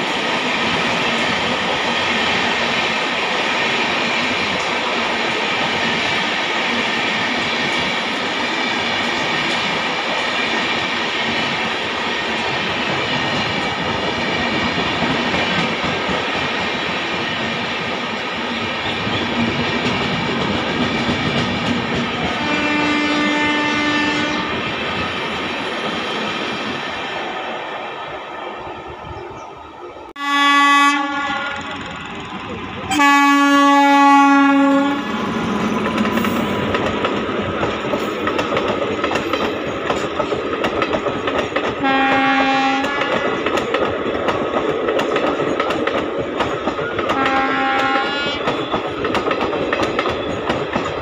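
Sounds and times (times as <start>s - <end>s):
train wheels rushing on rails: 0.0s - 51.0s
locomotive horn: 22.3s - 24.6s, 30.2s - 31.9s, 32.9s - 35.2s, 41.8s - 43.4s, 47.1s - 48.8s.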